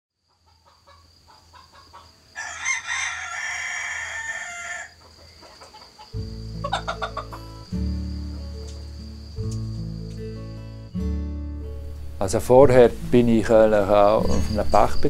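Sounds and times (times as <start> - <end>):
rooster clucking: 0.3 - 7.6
rooster crowing: 1.5 - 7.4
music with plucked strings: 6.1 - 14.9.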